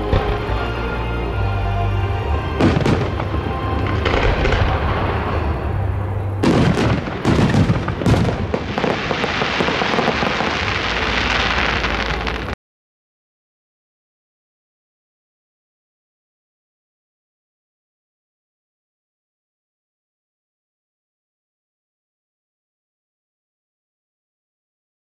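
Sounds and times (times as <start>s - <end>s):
music: 0.0s - 12.5s
crackling hiss of fireworks: 2.6s - 12.6s
firework shells bursting: 6.4s - 12.6s.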